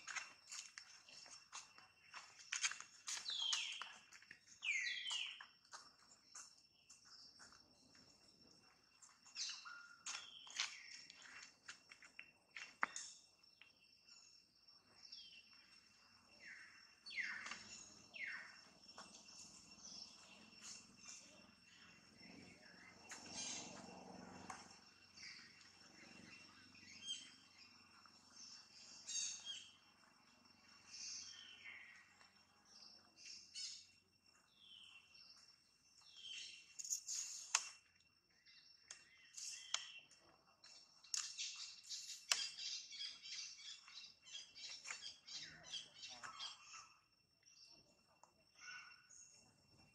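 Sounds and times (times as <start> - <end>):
high insect drone: 0.0 - 48.5
animals chirping and squeaking: 17.2 - 27.8, 36.4 - 37.8, 41.1 - 47.0
sharp click: 37.4 - 37.8.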